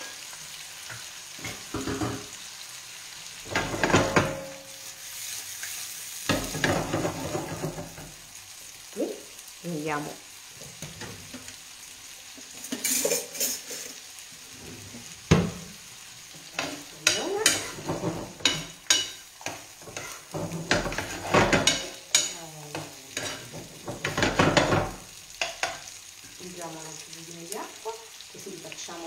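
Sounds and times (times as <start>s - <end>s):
sauce sizzling: 0.0s - 29.0s
utensil scraping a pan: 12.4s - 15.2s, 16.4s - 24.7s.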